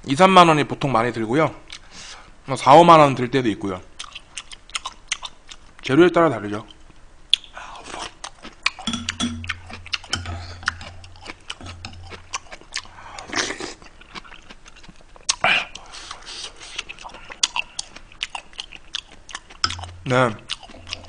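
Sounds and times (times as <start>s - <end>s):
chewing and mouth sounds: 4.0s - 5.8s, 6.6s - 21.0s
utensils clicking against dishes: 8.8s - 11.0s.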